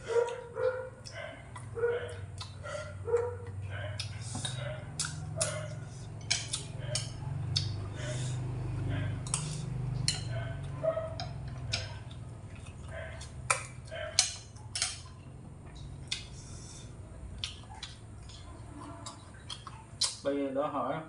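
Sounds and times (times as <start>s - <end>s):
chewing: 0.0s - 20.3s
cutlery clicking on ceramic plate: 10.0s - 10.3s, 13.5s - 15.1s.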